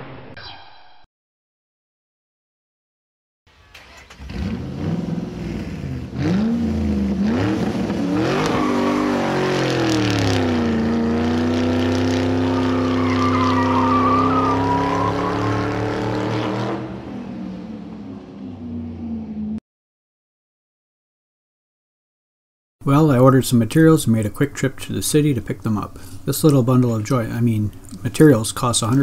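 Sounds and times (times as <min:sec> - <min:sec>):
car engine revving: 0:03.5 - 0:19.6.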